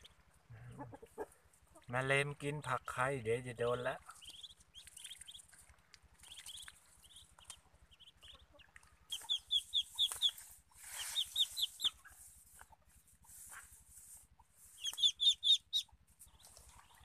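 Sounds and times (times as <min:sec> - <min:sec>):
ducklings peeping: 0:00.0 - 0:17.0.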